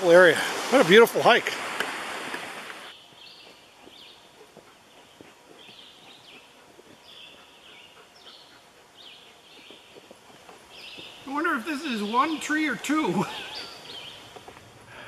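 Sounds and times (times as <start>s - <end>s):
rushing stream water: 0.0s - 3.0s, 9.6s - 14.4s
small bird chirping: 2.9s - 14.6s.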